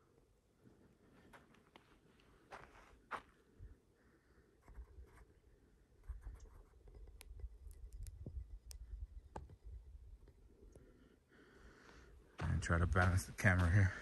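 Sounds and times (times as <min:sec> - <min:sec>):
footsteps on dirt trail: 0:01.1 - 0:03.4, 0:12.3 - 0:14.0.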